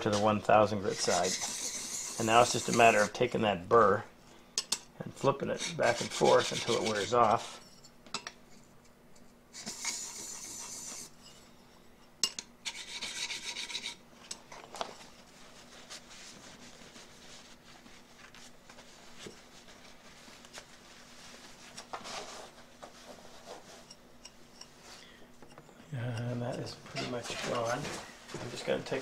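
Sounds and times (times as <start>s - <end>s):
steel scraping on sharpening plate: 0.9s - 3.1s, 5.5s - 7.9s, 9.5s - 11.2s
cloth wiping steel: 5.3s - 7.6s.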